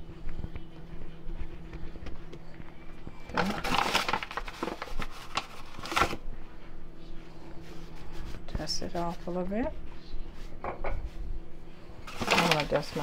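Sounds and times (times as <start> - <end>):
faint steady hum: 0.0 - 13.0
rustling and crinkling: 0.3 - 6.3, 12.0 - 13.0.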